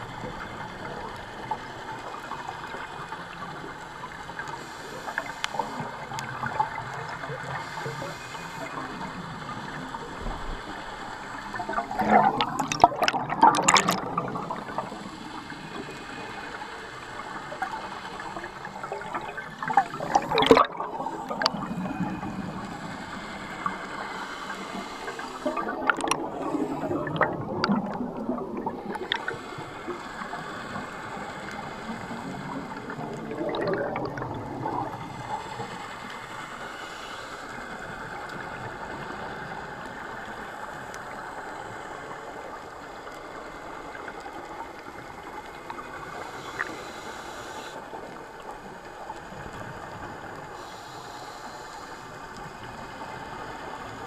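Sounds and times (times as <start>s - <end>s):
underwater hiss: 0.0s - 54.0s
diver's bubbles gurgling: 5.1s - 35.8s.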